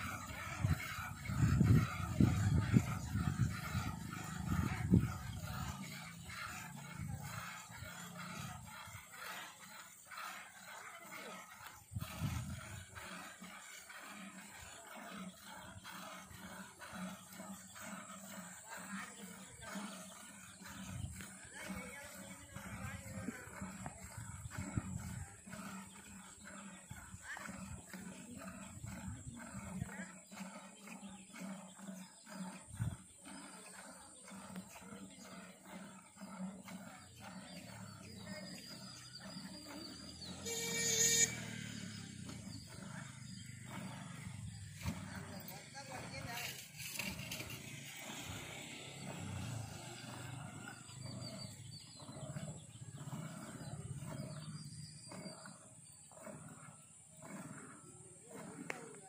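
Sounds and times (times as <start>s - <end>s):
low rough rumble: 41.2s - 58.3s.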